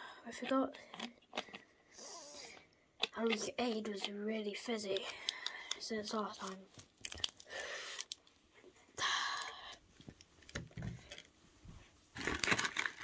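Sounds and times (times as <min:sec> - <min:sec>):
breathy hissing sounds: 0:01.8 - 0:02.8, 0:07.4 - 0:08.2
plastic bottle handling noise: 0:10.0 - 0:11.4, 0:12.2 - 0:13.0.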